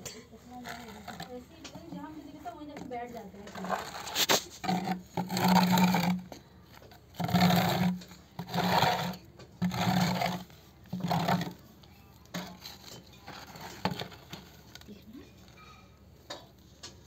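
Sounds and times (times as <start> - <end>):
hand saw rasping through wood: 0.5 - 6.3, 7.1 - 11.6.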